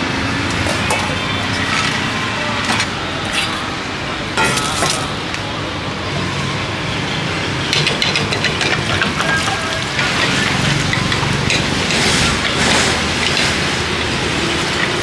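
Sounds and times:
street traffic: 0:00.0 - 0:15.0
metal bowls clinking: 0:00.4 - 0:03.6, 0:04.4 - 0:05.4.

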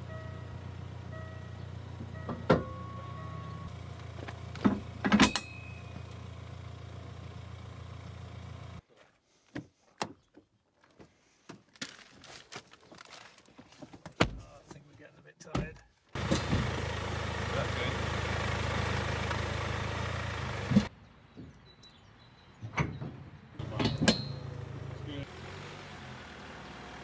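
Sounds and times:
car engine idling: 0:00.0 - 0:08.8, 0:16.2 - 0:20.9
metallic clanks of tow hitch: 0:04.6 - 0:06.2, 0:23.6 - 0:24.6.

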